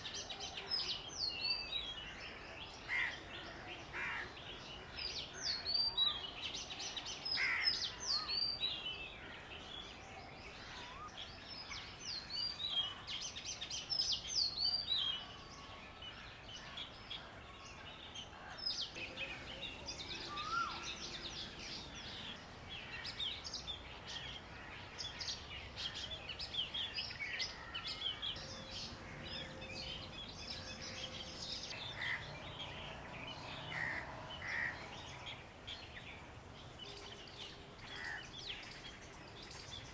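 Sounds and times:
birds chirping and calling: 0.0 - 39.9.

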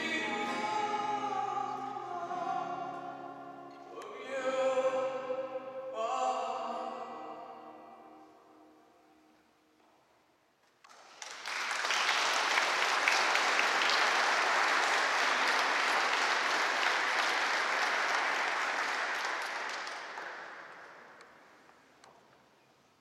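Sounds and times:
guests applauding: 10.8 - 21.2.

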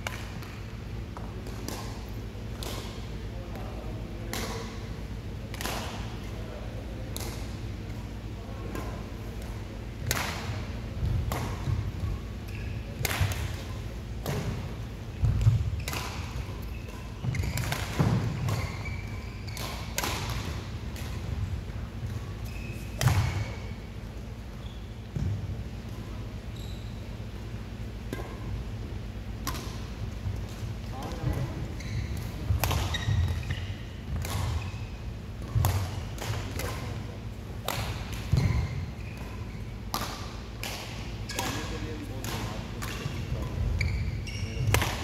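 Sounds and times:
rackets striking shuttlecock: 0.0 - 3.1, 4.3 - 4.9, 5.5 - 6.2, 8.6 - 21.4, 22.0 - 23.6, 27.4 - 28.7, 29.4 - 31.4, 32.1 - 34.8, 35.4 - 44.0, 44.6 - 45.0.

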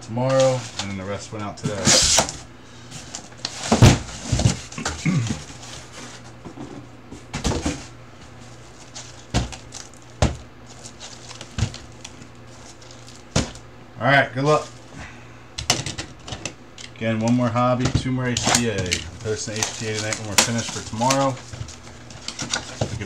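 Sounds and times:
cardboard boxes knocking and rustling: 3.0 - 8.0, 8.8 - 12.0, 12.6 - 13.6.

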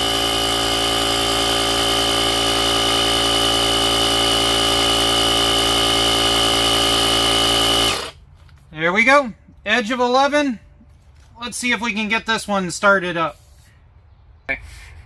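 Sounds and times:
air compressor humming and whining: 0.0 - 8.2.

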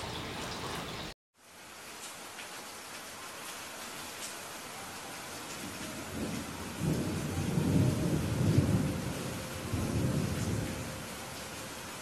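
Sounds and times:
rain hissing: 0.0 - 12.0
low rumble of thunder: 5.5 - 12.0.

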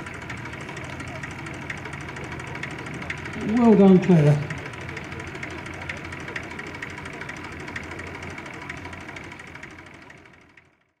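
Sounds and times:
aircraft engine running low power: 0.0 - 10.8.

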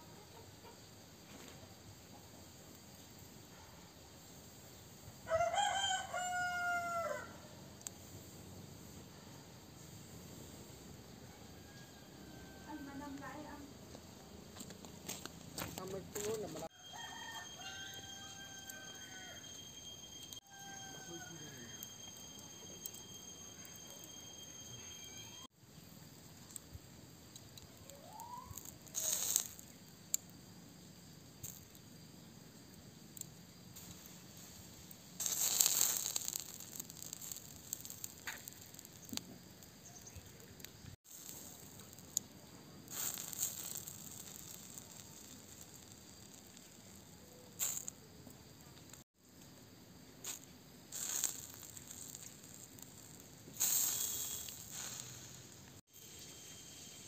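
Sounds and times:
juices sizzling on hot coals: 0.1 - 57.0
charcoal embers crackling: 0.2 - 57.0
short hissing sizzles: 27.8 - 30.4, 32.8 - 49.0, 50.2 - 57.0.

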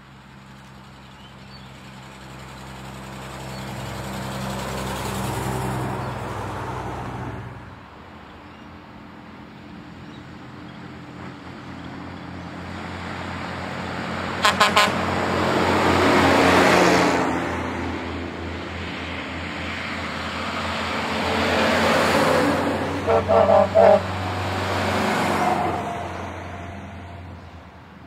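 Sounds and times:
truck engine passing: 0.1 - 8.2, 9.7 - 28.0
truck horn blasts: 14.4 - 15.1, 22.2 - 24.7.

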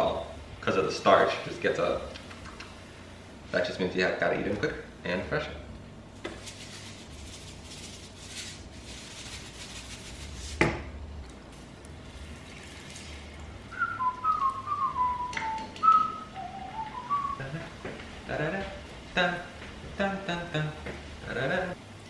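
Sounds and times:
man whistling a tune: 13.7 - 17.6.

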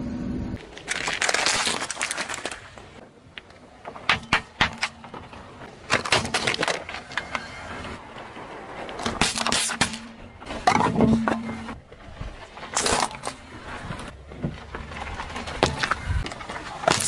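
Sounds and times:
tins crumpling and splitting: 0.6 - 3.0, 4.7 - 7.5, 12.6 - 14.1, 14.8 - 17.0
car tyre crushing objects: 0.6 - 17.0.

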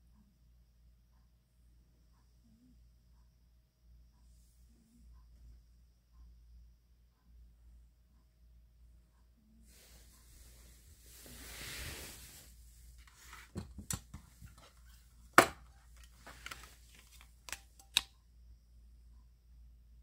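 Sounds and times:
handling rustle: 15.8 - 17.6.

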